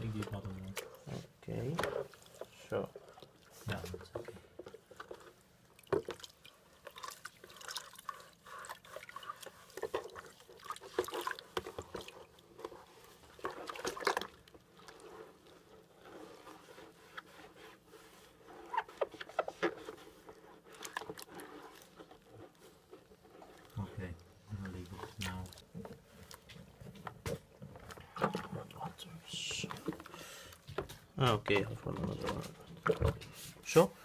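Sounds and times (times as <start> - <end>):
sponge scrubbing plastic: 0.0 - 33.9
water sloshing in a bucket: 0.0 - 34.0.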